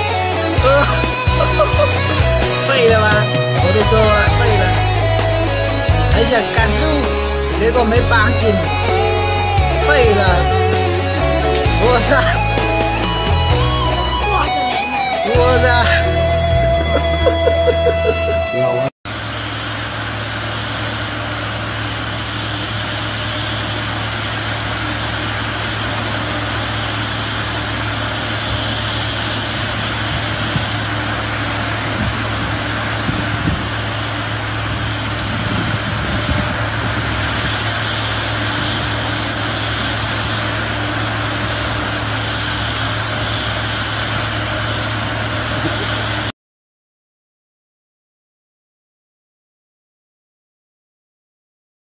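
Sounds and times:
construction machinery engine running: 0.0s - 46.3s.

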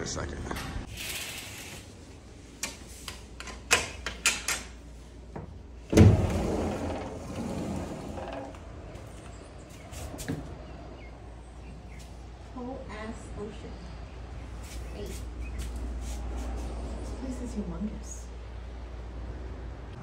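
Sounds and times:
sliding door thud: 5.4s - 9.2s.

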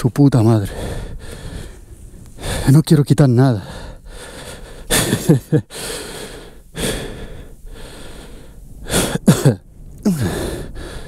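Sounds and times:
man breathing hard: 0.7s - 2.7s, 3.6s - 9.3s, 10.0s - 11.0s
man grunting: 9.2s - 10.5s.

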